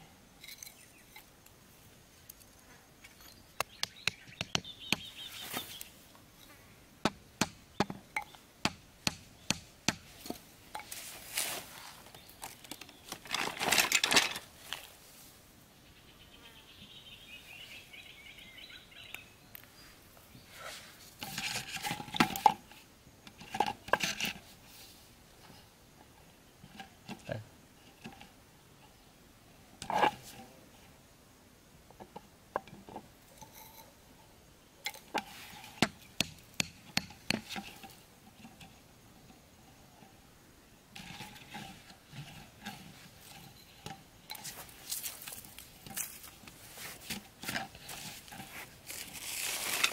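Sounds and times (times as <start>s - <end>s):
hatchet knocking bamboo stake: 3.6s - 5.1s, 7.0s - 10.0s, 35.8s - 37.6s
hands rustling string and gear: 5.1s - 6.6s, 10.1s - 15.4s, 19.6s - 28.4s, 41.0s - 49.9s.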